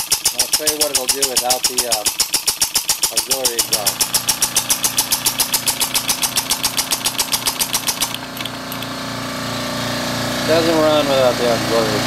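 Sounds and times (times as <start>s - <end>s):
air-powered engine chuffing: 0.0s - 12.0s.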